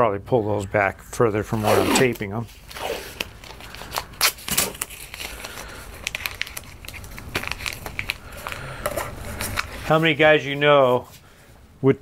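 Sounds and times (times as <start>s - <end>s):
adhesive tape crackling: 1.8s - 10.0s.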